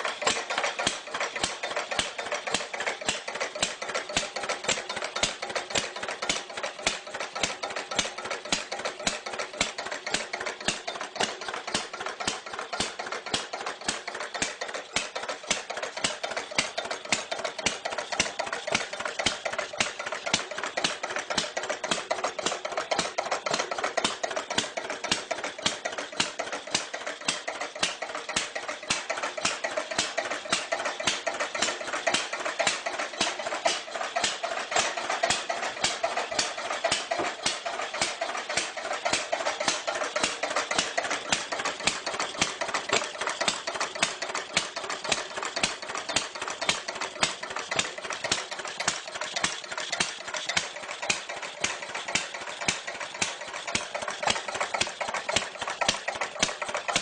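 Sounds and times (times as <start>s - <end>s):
old engine idling with clattering knocks: 0.0s - 57.0s.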